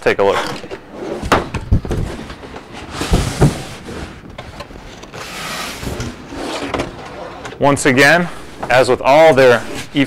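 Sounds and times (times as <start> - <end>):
cardboard sliding and scraping: 2.0 - 7.4.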